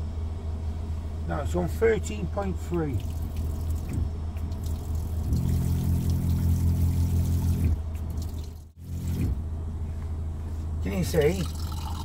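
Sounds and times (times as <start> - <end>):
van engine idling: 0.0 - 12.0
small electric pump humming: 3.0 - 9.4.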